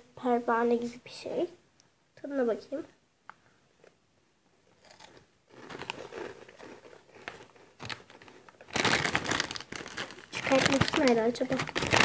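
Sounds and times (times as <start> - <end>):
crunchy snack being chewed: 4.8 - 12.0
snack bag crinkling: 4.8 - 12.0.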